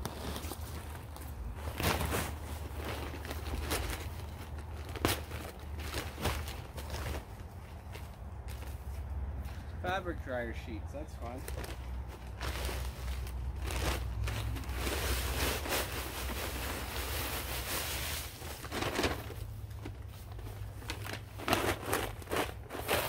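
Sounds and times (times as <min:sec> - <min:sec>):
paper bag crinkling: 0:00.0 - 0:08.7, 0:11.2 - 0:23.0
dry leaves pouring rustling: 0:11.6 - 0:23.0.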